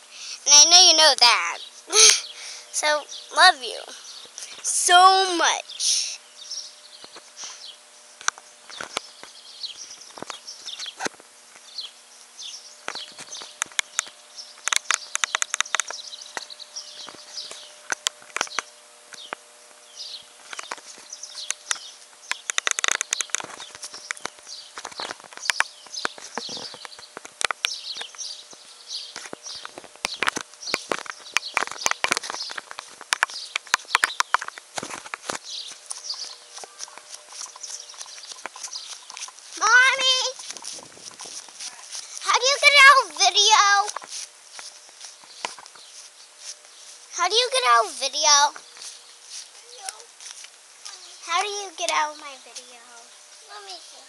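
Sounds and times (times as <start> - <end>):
high chirping: 35.4 - 44.0.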